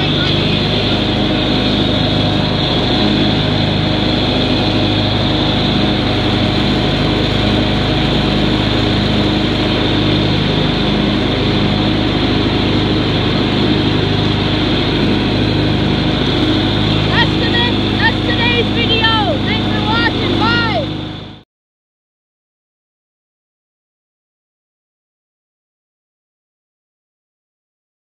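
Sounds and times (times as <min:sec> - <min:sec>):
riding lawn mower engine: 0:00.0 - 0:21.4.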